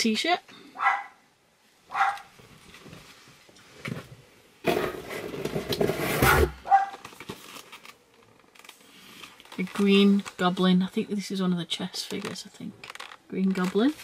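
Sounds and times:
dog barking: 0.8 - 1.2, 1.9 - 2.3, 6.2 - 7.0
rustling and handling noise: 1.7 - 14.0.

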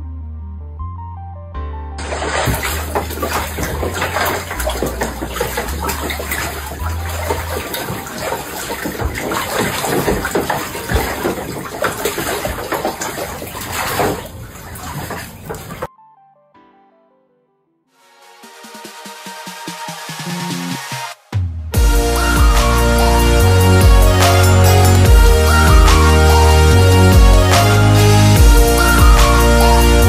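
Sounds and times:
water splashing in a tub: 2.0 - 15.9, 23.6 - 29.5.

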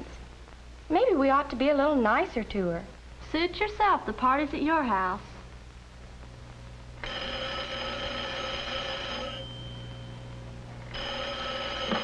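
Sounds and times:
desk telephone ringing: 7.0 - 12.0.

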